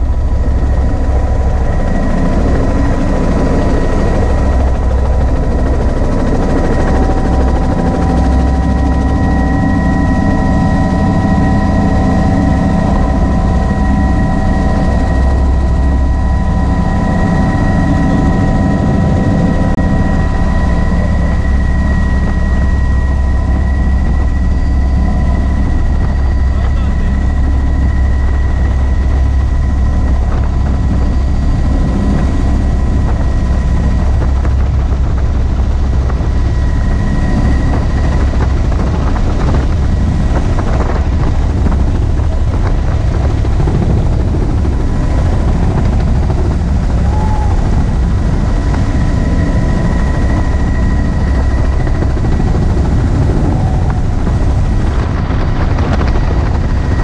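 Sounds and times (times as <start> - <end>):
faint high whine: 0.0 - 43.2, 43.8 - 57.0
helicopter rotor and engine noise: 0.0 - 57.0
wind rushing: 29.2 - 57.0.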